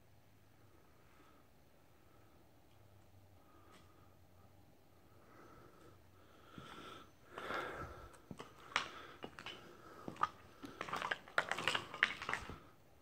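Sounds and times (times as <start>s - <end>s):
footsteps crunching on debris: 7.4s - 12.7s.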